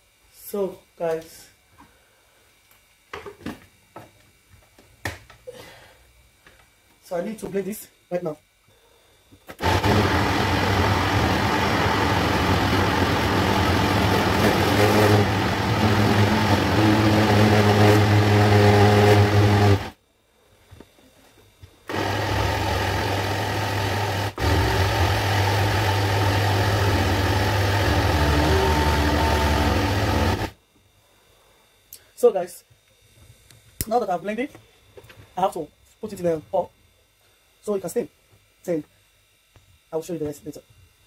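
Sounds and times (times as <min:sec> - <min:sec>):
blender running: 0:09.5 - 0:20.0, 0:21.9 - 0:30.6.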